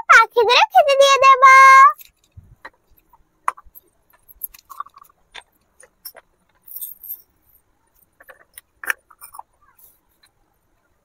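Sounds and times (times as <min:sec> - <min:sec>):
glass bangles clinking: 0:02.0 - 0:10.2.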